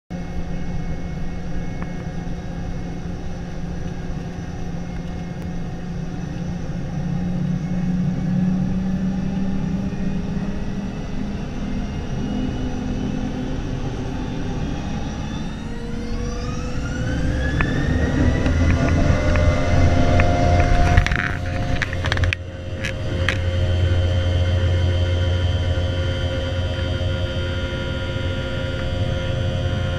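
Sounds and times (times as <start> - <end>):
engine whine rising in pitch: 0.1 - 29.9
jet engine rumble in cabin: 0.1 - 29.9.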